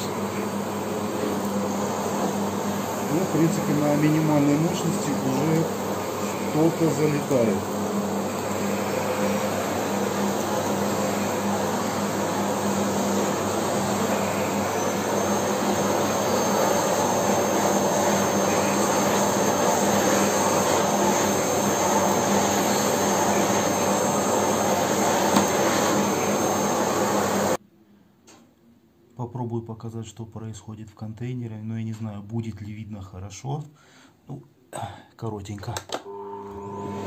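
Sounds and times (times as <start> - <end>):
thin high whine: 0.0 - 27.6
vacuum cleaner running on carpet: 0.0 - 27.6, 36.1 - 37.0.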